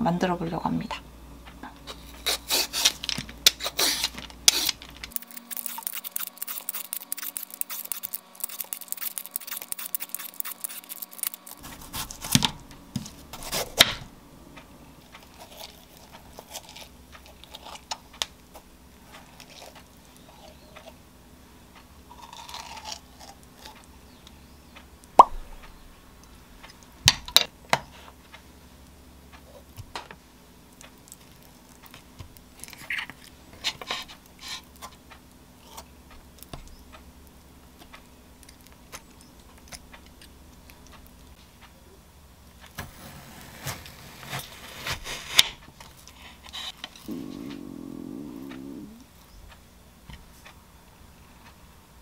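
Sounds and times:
peeler rasping over melon rind: 1.9s - 12.4s
knife scraping melon: 1.9s - 12.5s, 13.3s - 13.8s, 15.2s - 18.0s, 42.9s - 47.1s
sharp clicks: 4.5s - 11.6s.

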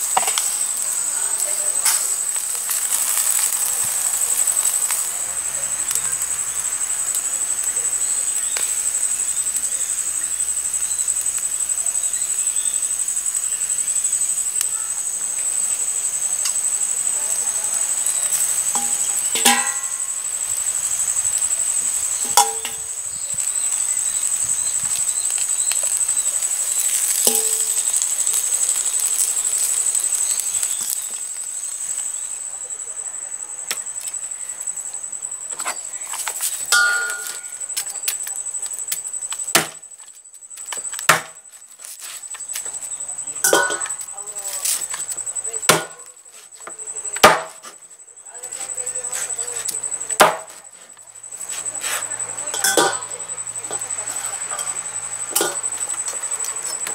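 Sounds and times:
insect trill: 0.0s - 56.9s
metal tongs clinking on bowl: 18.8s - 20.0s, 52.5s - 53.1s.

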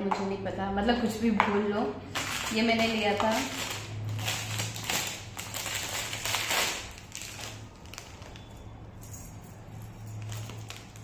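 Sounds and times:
plastic packaging crinkling: 2.1s - 8.7s, 10.1s - 11.0s.

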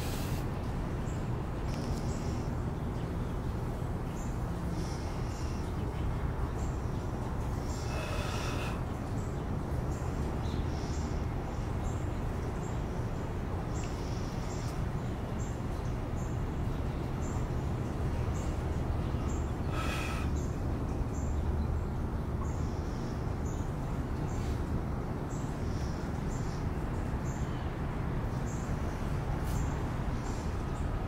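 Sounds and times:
fuller bird call: 7.6s - 9.0s, 19.2s - 20.6s.

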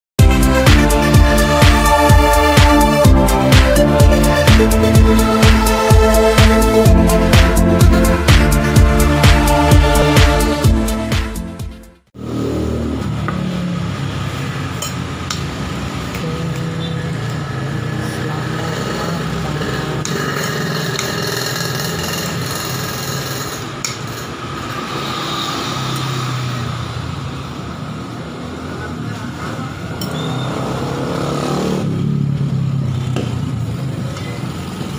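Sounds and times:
traffic noise: 12.1s - 34.9s.

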